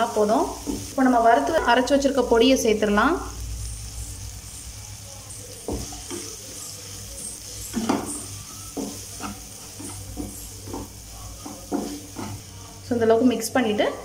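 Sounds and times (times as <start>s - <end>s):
vegetables sizzling in oil: 0.0s - 14.0s
wooden spatula scraping pan: 7.5s - 12.5s.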